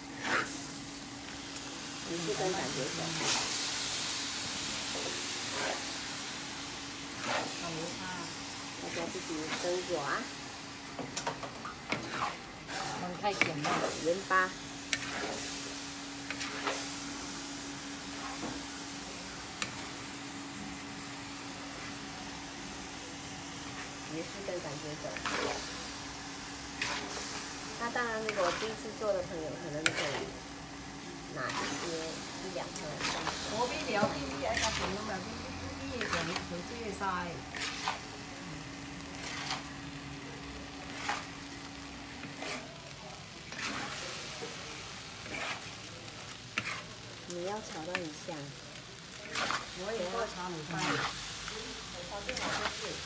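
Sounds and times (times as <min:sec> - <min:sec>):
food sizzling in a wok: 0:00.0 - 0:53.0
metal spatula scraping a pan: 0:05.0 - 0:05.9, 0:07.2 - 0:07.6, 0:11.9 - 0:14.2, 0:14.9 - 0:15.5, 0:25.2 - 0:25.7, 0:26.8 - 0:27.2, 0:28.2 - 0:29.0, 0:29.8 - 0:30.4, 0:31.4 - 0:32.0, 0:32.8 - 0:35.2, 0:36.0 - 0:36.6, 0:37.4 - 0:38.0, 0:39.2 - 0:39.7, 0:42.2 - 0:42.7, 0:43.5 - 0:44.0, 0:45.2 - 0:45.7, 0:46.6 - 0:46.9, 0:49.2 - 0:51.2, 0:52.2 - 0:52.8.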